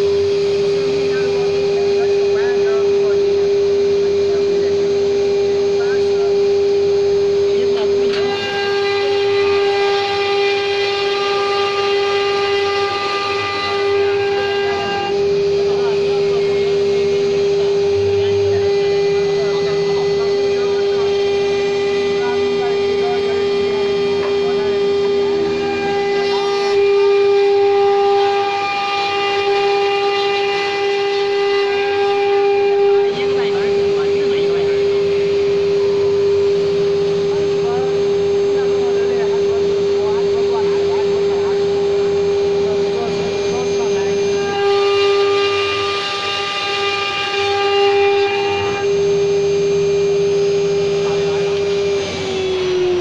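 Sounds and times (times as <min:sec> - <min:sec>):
router spindle high-pitched whine: 0:00.0 - 0:53.0.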